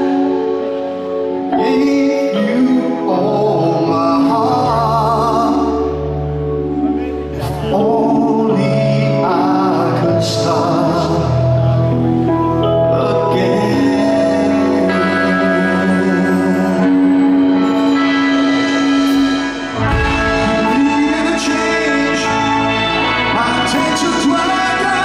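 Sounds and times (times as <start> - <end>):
live rock band playing: 0.0 - 25.0
man singing with vibrato: 0.0 - 25.0.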